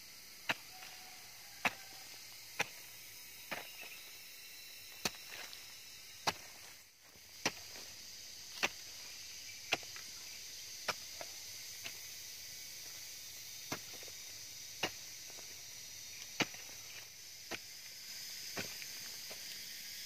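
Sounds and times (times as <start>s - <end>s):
high insect drone: 0.0s - 20.0s
hoe chopping into soil: 0.4s - 4.0s, 4.9s - 5.6s, 6.2s - 10.2s, 10.8s - 12.1s, 13.6s - 15.6s, 16.2s - 17.8s, 18.5s - 19.5s.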